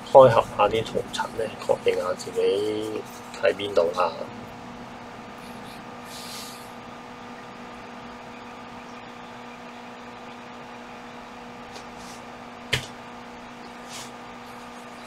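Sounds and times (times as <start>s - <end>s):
low electrical hum: 0.0s - 15.0s
hiss: 5.4s - 6.8s.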